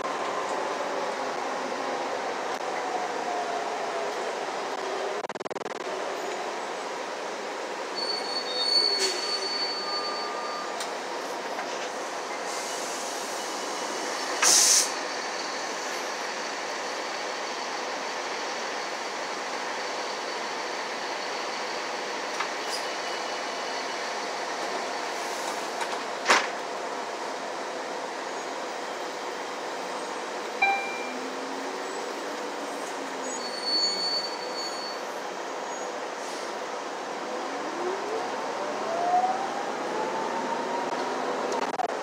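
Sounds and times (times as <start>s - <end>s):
bus running noise: 0.0s - 42.0s
high squeal: 8.0s - 10.8s, 33.2s - 35.9s
loud air hiss: 12.4s - 15.1s.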